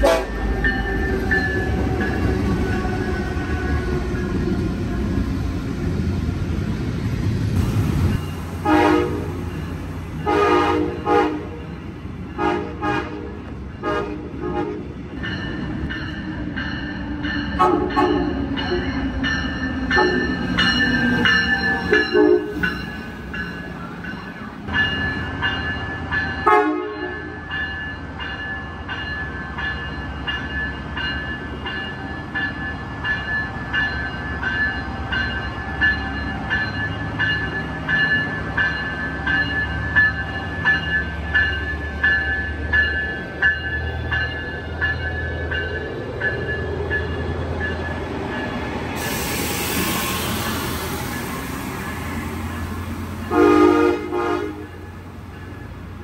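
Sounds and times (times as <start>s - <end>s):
train horn: 0.0s - 0.6s, 2.1s - 5.2s, 8.6s - 9.4s, 10.2s - 11.6s, 12.4s - 14.8s, 17.6s - 18.3s, 21.9s - 22.6s, 26.4s - 27.3s, 53.3s - 54.8s
train clattering past: 0.0s - 56.0s.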